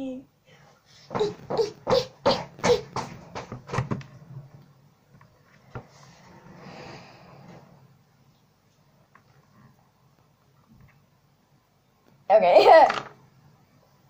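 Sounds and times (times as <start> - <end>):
girl laughing: 12.4 - 12.9.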